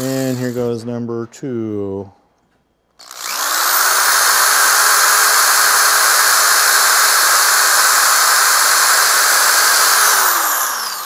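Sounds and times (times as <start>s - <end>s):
cordless drill whirring: 3.0s - 11.0s.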